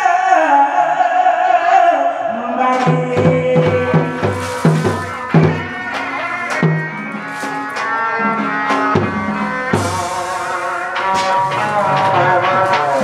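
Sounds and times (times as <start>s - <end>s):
pitched drum strokes: 2.8s - 13.0s
sustained melody line: 3.3s - 13.0s.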